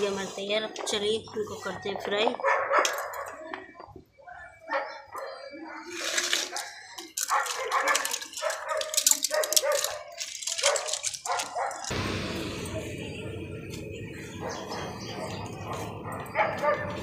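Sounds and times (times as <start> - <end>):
dog barking: 2.4 - 3.4, 4.4 - 5.6, 7.3 - 11.9, 14.4 - 17.0.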